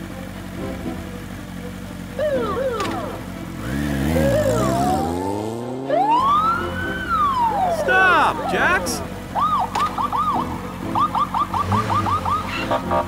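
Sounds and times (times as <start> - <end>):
police siren wail: 2.2 - 3.2, 4.0 - 5.2, 5.8 - 13.0
cartoon engine revving: 2.2 - 13.0.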